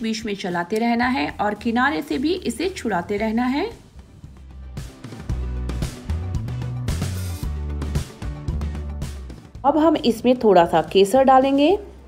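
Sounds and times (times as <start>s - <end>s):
background music with beat: 2.1s - 9.7s.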